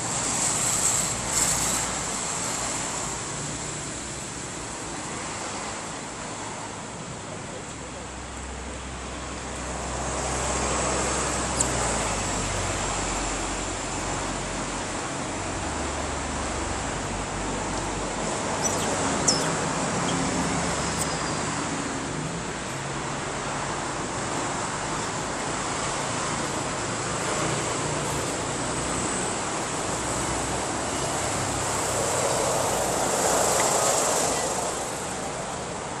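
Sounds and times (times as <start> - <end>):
brief high chirp: 18.6 - 20.3.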